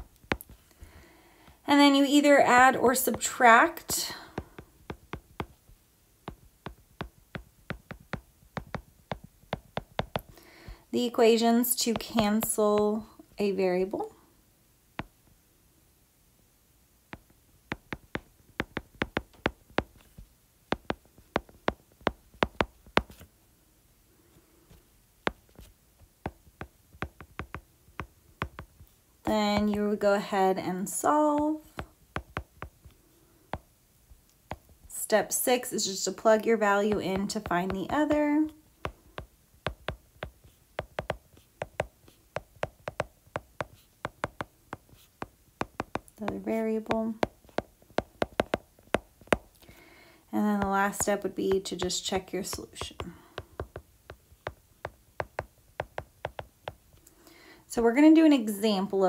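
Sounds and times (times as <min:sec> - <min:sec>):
stylus tapping on glass screen: 0:04.1 - 0:05.6, 0:06.3 - 0:10.4, 0:17.2 - 0:23.2, 0:26.3 - 0:28.8, 0:29.4 - 0:29.9, 0:31.4 - 0:32.8, 0:36.9 - 0:49.6, 0:50.6 - 0:56.8.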